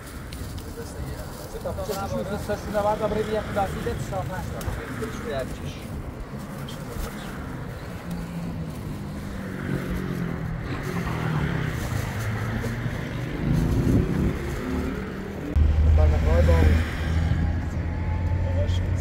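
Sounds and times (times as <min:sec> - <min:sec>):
road noise: 0:00.0 - 0:19.0
loud low drone: 0:13.2 - 0:19.0.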